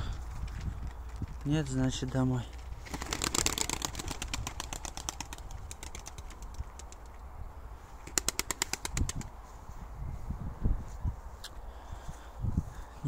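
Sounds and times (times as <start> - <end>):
pigeon wings clattering: 0.2 - 7.2, 8.0 - 9.4.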